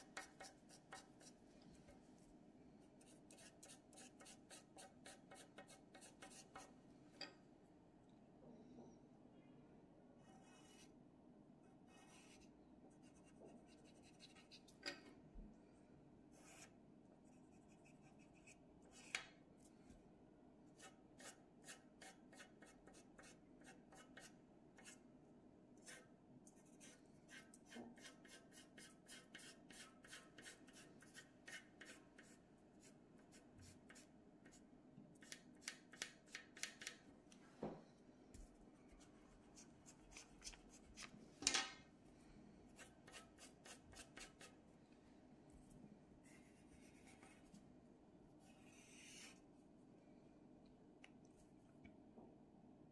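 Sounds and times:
pencil scratching on paper: 0.0 - 1.4, 3.0 - 6.7, 10.2 - 10.9, 11.8 - 14.8, 16.3 - 19.2, 20.8 - 25.0, 25.8 - 34.6, 42.8 - 44.6, 48.4 - 49.4.

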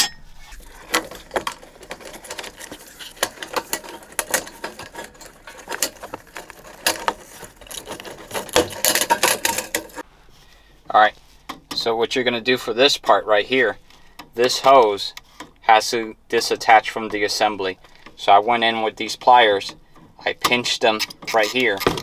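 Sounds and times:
plastic fittings clicking and rattling: 0.5 - 10.0.

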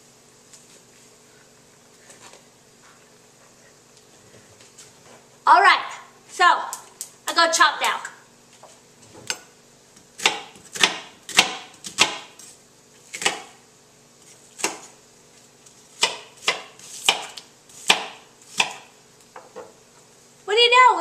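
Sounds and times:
knife chopping on cutting board: 10.1 - 12.4, 13.1 - 13.6, 14.6 - 14.9, 16.0 - 18.9.

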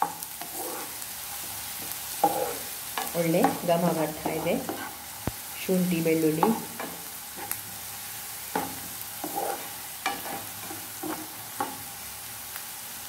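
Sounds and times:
spatula scraping pan: 0.0 - 5.1, 6.2 - 7.6, 8.5 - 11.9
food sizzling in oil: 0.0 - 13.0.

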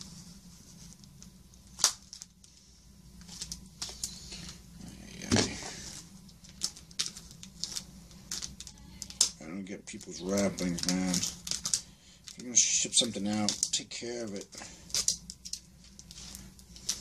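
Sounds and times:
packing tape and cardboard tearing: 1.0 - 2.4, 5.2 - 17.0.

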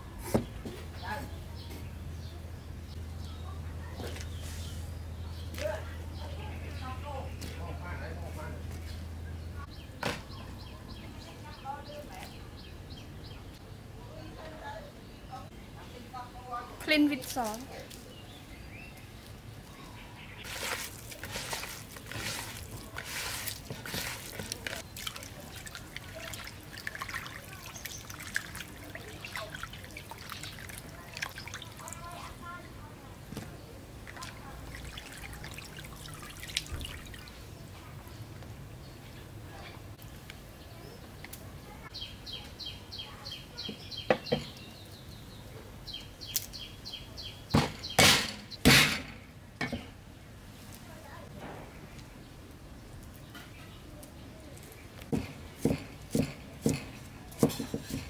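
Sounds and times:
hands splashing in water: 20.4 - 32.2, 34.0 - 37.4
water trickling and dripping: 20.4 - 32.5, 34.0 - 37.5
bird chirping: 24.8 - 32.6, 40.0 - 48.6.

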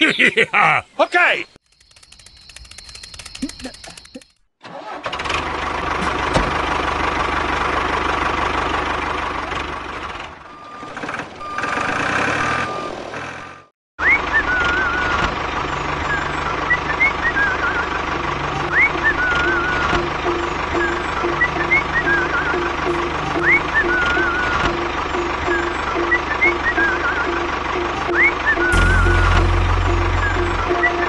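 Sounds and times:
faint rapid clicking: 1.6 - 4.4
tractor engine running: 1.6 - 31.0.

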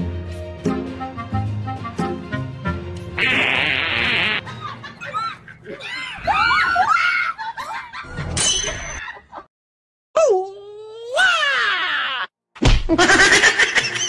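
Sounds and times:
women screaming in fright: 5.1 - 7.4, 11.0 - 12.3.

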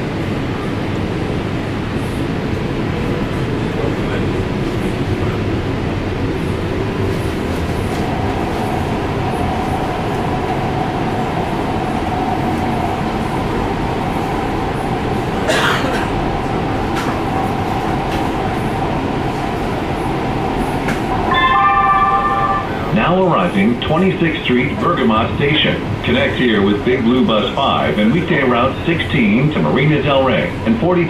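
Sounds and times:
wheels rumbling on rail: 0.0 - 31.0
steady whine: 19.7 - 31.0.

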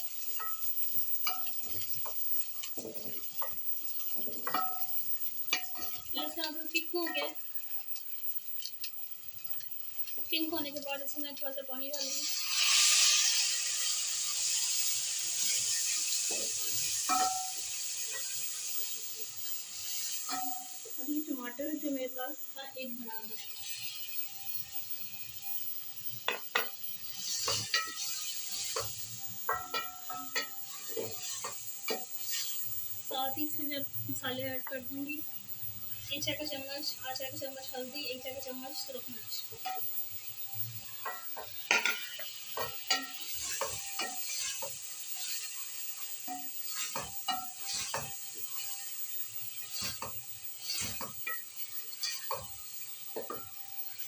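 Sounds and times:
sizzling oil hiss: 0.0 - 54.0
wooden spoon scraping metal pot: 49.6 - 51.4.

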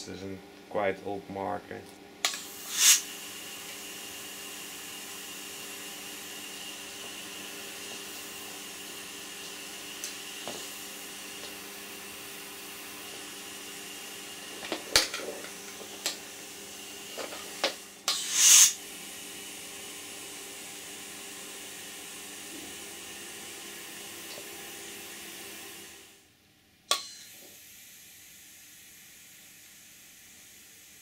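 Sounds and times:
compressed air hissing: 2.3 - 3.2, 17.5 - 18.8
loud blast of escaping air: 2.5 - 3.1, 18.1 - 18.8.

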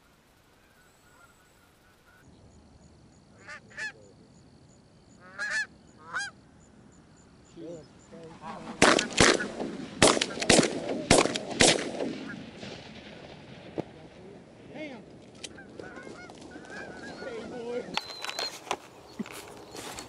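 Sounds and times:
geese honking: 0.5 - 2.3, 3.3 - 4.1, 5.1 - 6.6, 7.6 - 10.8, 15.4 - 20.0
shotgun shots: 8.5 - 14.2.

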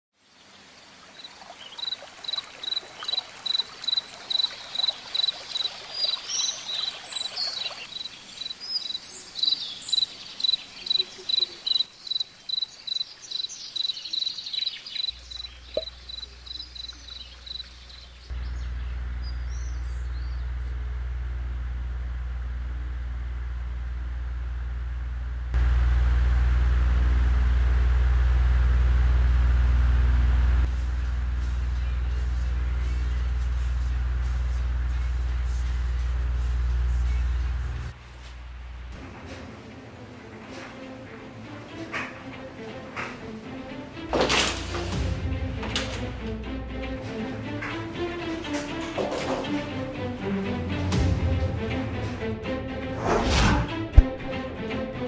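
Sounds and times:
crickets chirping: 0.5 - 18.3
bird chirps: 1.1 - 20.5
low hum and hiss: 7.8 - 40.3.

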